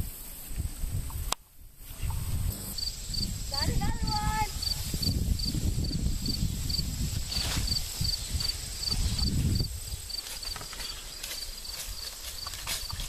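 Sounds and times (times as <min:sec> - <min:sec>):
cricket chirping: 0:00.0 - 0:13.0
low rumbling noise: 0:02.2 - 0:04.1.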